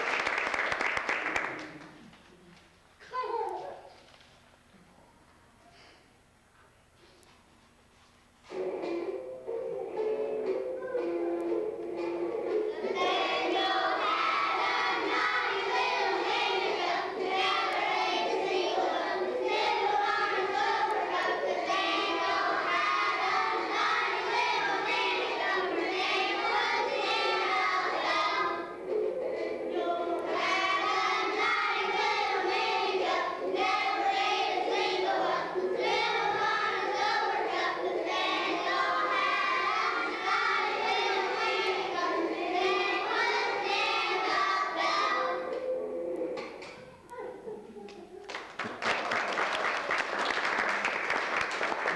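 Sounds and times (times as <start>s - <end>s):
children singing together: 8.5s - 47.0s.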